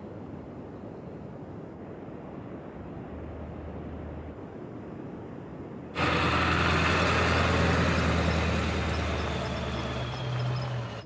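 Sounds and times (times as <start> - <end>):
diesel engine running: 6.0 - 11.0.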